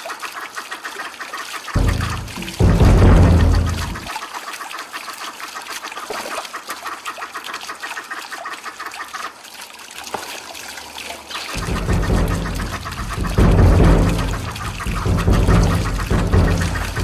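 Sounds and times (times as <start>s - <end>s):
fountain water trickling and splashing: 0.0s - 17.0s
music: 1.8s - 4.1s, 11.6s - 17.0s.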